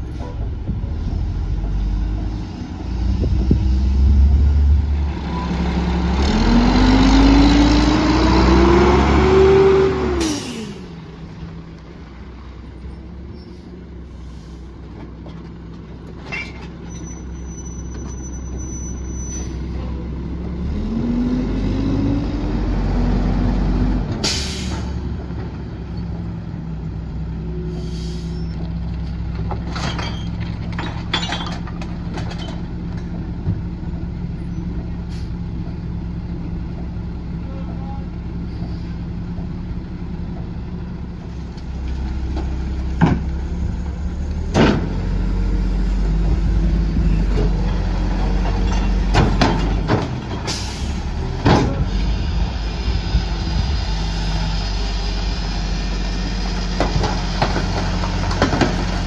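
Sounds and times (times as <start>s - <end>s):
garbage truck engine revving: 1.3s - 11.0s
air brake hiss: 10.2s - 10.8s, 24.2s - 25.0s, 27.7s - 28.5s, 50.5s - 51.0s.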